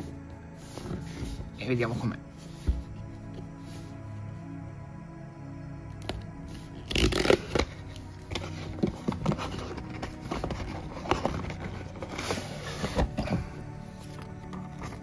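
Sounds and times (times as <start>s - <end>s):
soft background music: 0.0s - 15.0s
hands scraping cardboard box: 6.8s - 15.0s.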